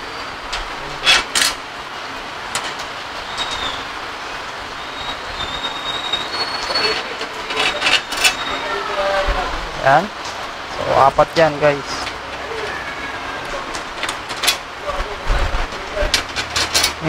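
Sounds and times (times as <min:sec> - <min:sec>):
heavy rain hissing: 0:00.0 - 0:17.0
metal parts clicking and knocking: 0:01.0 - 0:01.6, 0:07.5 - 0:08.4, 0:13.7 - 0:14.6, 0:16.0 - 0:17.0.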